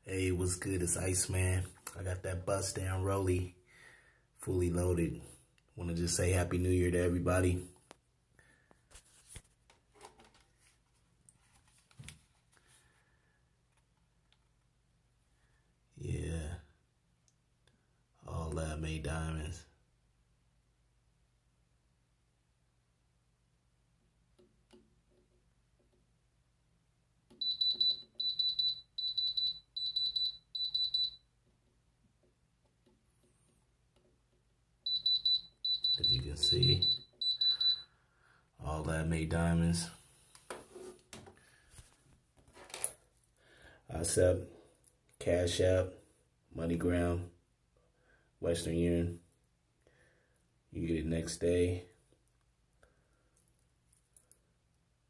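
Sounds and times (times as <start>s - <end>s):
electronic tester beeping: 27.4s - 31.2s, 34.9s - 37.9s.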